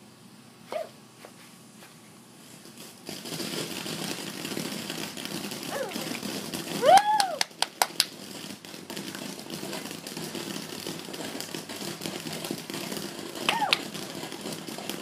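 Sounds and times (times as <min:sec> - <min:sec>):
firework sparks hissing and crackling: 0:00.0 - 0:15.0
firework popping: 0:01.3 - 0:15.0.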